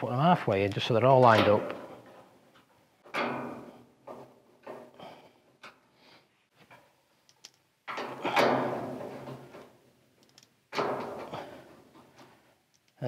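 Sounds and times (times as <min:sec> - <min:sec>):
steel door rattling and booming: 0:01.2 - 0:02.2, 0:03.1 - 0:04.8, 0:07.9 - 0:09.8, 0:10.7 - 0:11.6.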